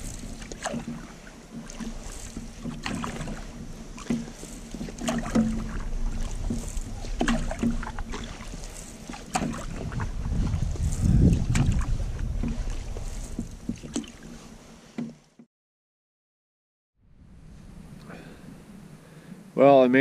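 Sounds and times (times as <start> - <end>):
paddle knocking against canoe: 0.0 - 15.5
paddle swishing through water: 0.0 - 15.5.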